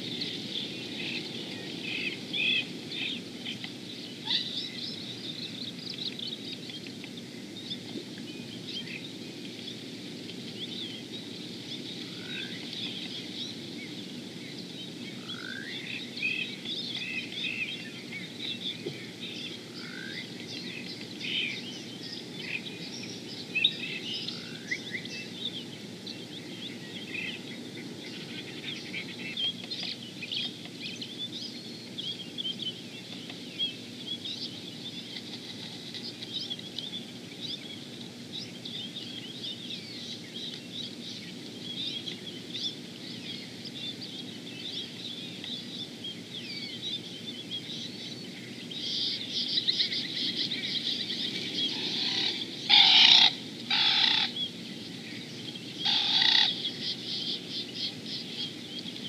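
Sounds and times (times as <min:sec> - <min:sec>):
low steady background noise: 0:00.0 - 0:59.0
small birds chirping: 0:00.0 - 0:59.0
loud short bird calls: 0:48.8 - 0:54.6, 0:55.8 - 0:58.5.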